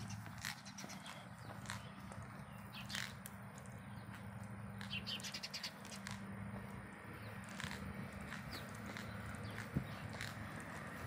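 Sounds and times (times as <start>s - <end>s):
small bird chirps: 0.0s - 3.2s, 4.8s - 6.1s
footsteps on brick: 0.0s - 11.0s.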